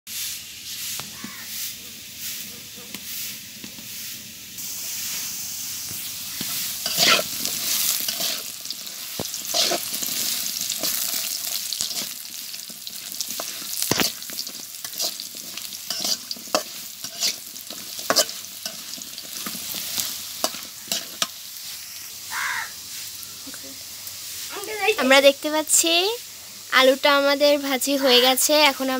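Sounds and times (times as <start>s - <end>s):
potatoes sizzling in oil: 0.1s - 28.9s
metal spatula scraping a pan: 6.3s - 21.4s.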